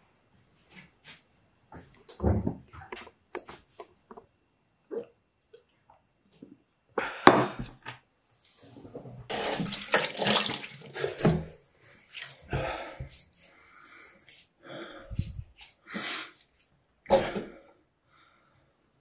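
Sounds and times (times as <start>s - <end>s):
tap water running into sink: 9.3s - 11.5s
water splashing from hands: 9.3s - 12.6s.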